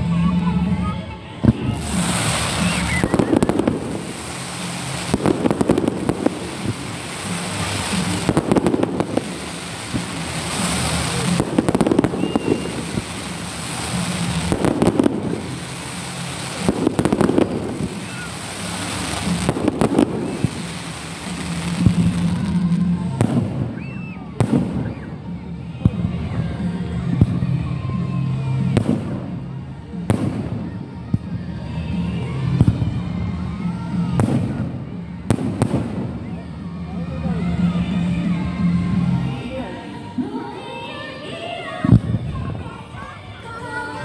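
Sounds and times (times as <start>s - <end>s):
fireworks hissing and crackling: 0.0s - 26.4s, 28.4s - 37.8s
fireworks banging: 1.4s - 25.1s.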